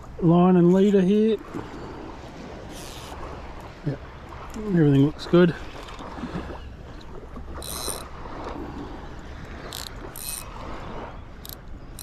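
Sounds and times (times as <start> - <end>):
fishing reel drag clicking: 2.7 - 3.2, 7.6 - 8.1, 9.6 - 10.5, 11.4 - 12.0.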